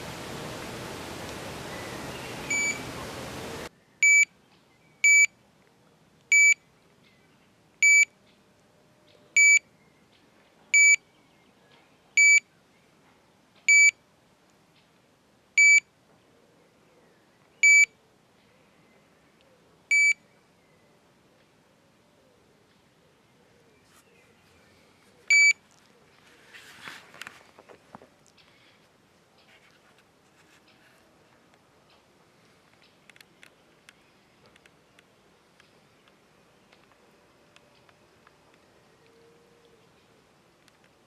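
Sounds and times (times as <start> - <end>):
wind hiss: 0.0 - 3.7
high-pitched bite alarm bleeps: 2.5 - 2.8.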